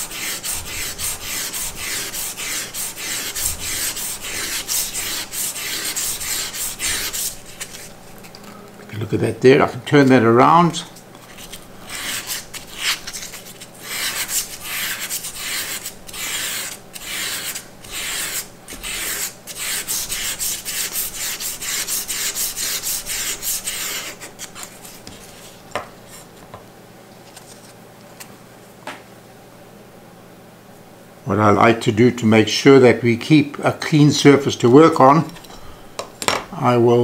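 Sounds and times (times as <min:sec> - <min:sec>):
sandpaper rubbing on metal: 0:00.0 - 0:07.9, 0:11.4 - 0:24.3.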